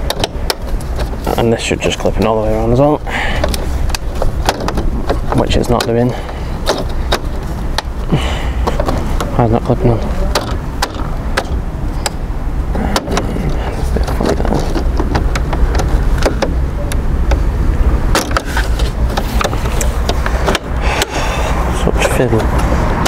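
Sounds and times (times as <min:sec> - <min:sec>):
plastic grille clicking and knocking: 0:00.0 - 0:01.2, 0:03.4 - 0:08.0, 0:08.6 - 0:12.2, 0:12.9 - 0:16.6
steady low rumble: 0:00.0 - 0:23.0.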